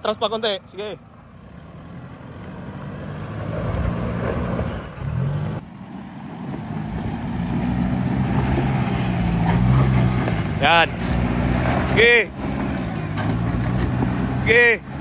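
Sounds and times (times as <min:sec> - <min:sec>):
vehicle engine working under load: 0:00.0 - 0:15.0.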